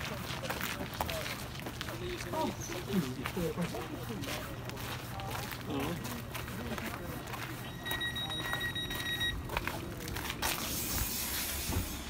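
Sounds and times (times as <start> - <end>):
train door warning beep: 7.7 - 9.5
hiss: 10.5 - 12.0.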